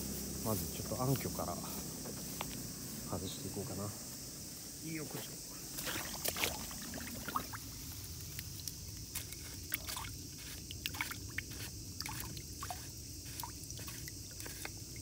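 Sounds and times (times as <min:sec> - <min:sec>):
water trickling and gurgling: 0:05.6 - 0:15.0.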